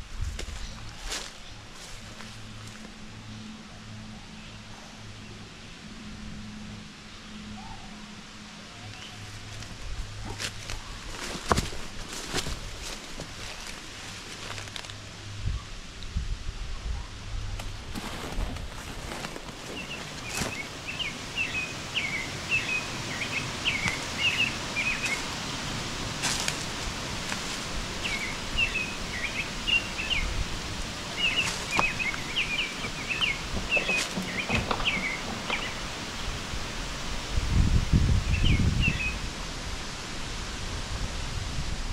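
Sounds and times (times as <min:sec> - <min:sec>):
outdoor hiss: 0:17.6 - 0:41.9
songbird chirping: 0:18.0 - 0:25.6, 0:27.2 - 0:30.4, 0:31.1 - 0:36.4.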